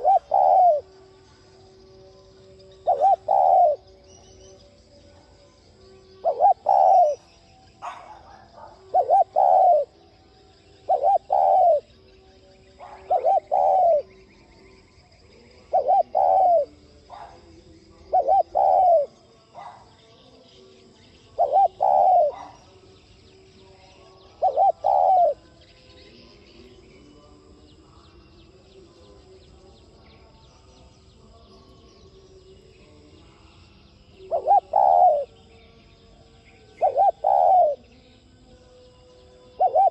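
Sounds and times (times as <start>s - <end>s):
dove cooing: 0.0s - 1.2s, 2.7s - 4.2s, 6.2s - 10.0s, 10.8s - 12.0s, 12.7s - 14.2s, 15.5s - 19.9s, 21.3s - 22.8s, 24.3s - 25.4s, 34.2s - 35.4s, 36.7s - 37.9s, 39.5s - 39.9s.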